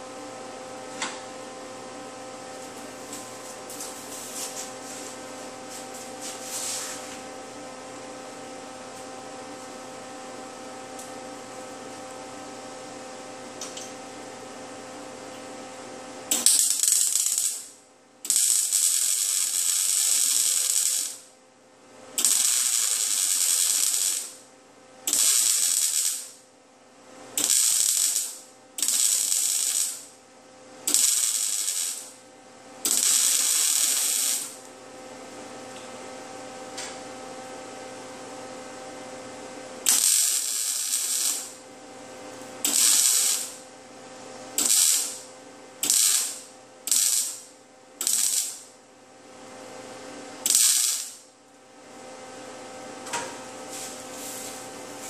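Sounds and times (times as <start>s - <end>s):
welder humming: 16.3s - 21.3s, 22.2s - 24.4s, 25.0s - 26.4s, 27.3s - 30.2s, 30.8s - 32.2s, 32.8s - 34.8s, 39.8s - 43.7s, 44.5s - 48.7s, 50.4s - 51.2s
welding arc crackling and hissing: 16.3s - 21.3s, 22.2s - 24.4s, 25.1s - 26.4s, 27.4s - 30.1s, 30.9s - 32.2s, 32.8s - 34.6s, 39.8s - 41.6s, 42.6s - 43.6s, 44.6s - 48.7s, 50.4s - 51.2s.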